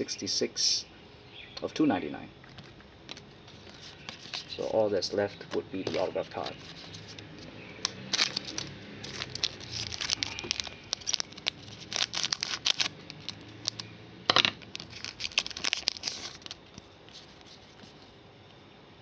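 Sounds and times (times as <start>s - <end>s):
foil wrapper crinkling: 2.5s - 5.1s, 5.8s - 7.2s, 7.8s - 13.9s, 14.6s - 18.0s.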